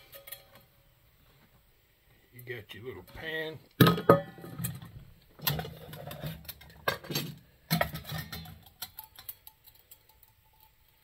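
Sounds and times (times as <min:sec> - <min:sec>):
metal mess kit clinking: 0:03.1 - 0:10.2.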